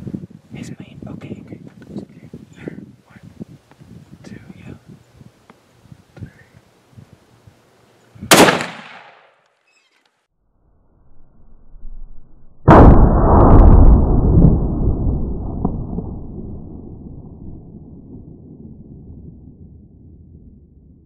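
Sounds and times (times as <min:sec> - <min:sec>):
rifle shot sharp crack: 0:08.3 - 0:09.4
heavy low blast: 0:12.6 - 0:21.0.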